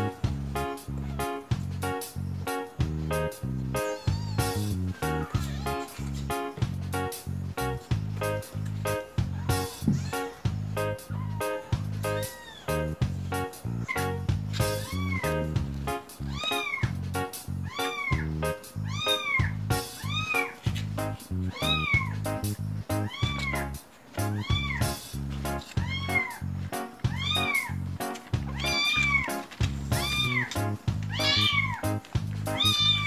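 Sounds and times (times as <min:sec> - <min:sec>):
background music with bass line: 0:00.0 - 0:23.8, 0:24.6 - 0:33.0
kitten meowing: 0:03.8 - 0:06.2, 0:09.3 - 0:13.0, 0:14.6 - 0:15.5, 0:16.3 - 0:16.9, 0:17.6 - 0:20.6, 0:21.5 - 0:22.2, 0:23.0 - 0:23.6, 0:24.4 - 0:25.0, 0:25.8 - 0:26.4, 0:27.0 - 0:27.8, 0:28.4 - 0:29.3, 0:29.9 - 0:31.9, 0:32.5 - 0:33.0.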